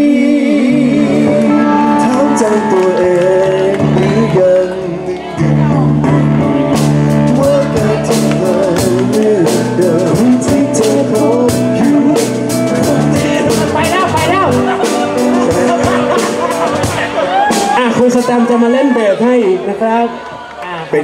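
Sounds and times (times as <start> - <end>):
person singing: 0.0 - 17.6
electric guitar: 0.0 - 18.4
drum kit and cymbals: 6.8 - 18.2.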